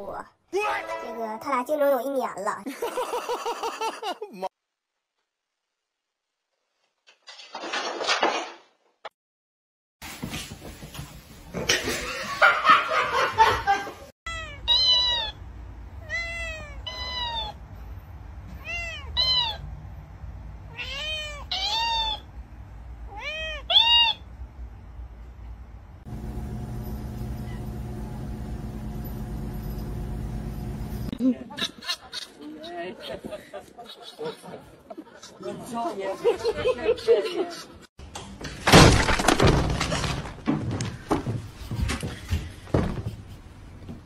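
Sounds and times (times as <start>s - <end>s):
cat meowing: 14.3s - 15.4s, 16.0s - 17.6s, 18.6s - 19.6s, 20.7s - 22.3s, 23.1s - 24.2s
steady low hum: 26.1s - 31.2s.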